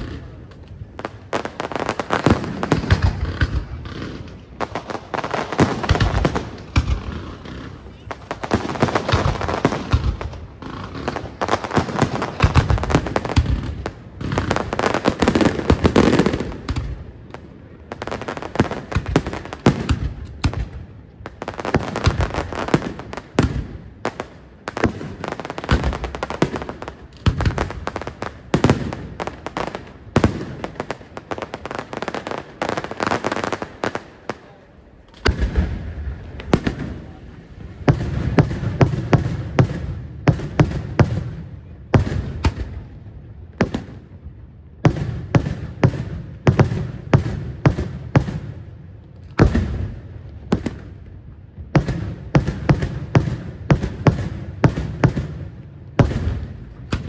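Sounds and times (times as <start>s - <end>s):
fireworks crackling and banging: 0.0s - 57.0s.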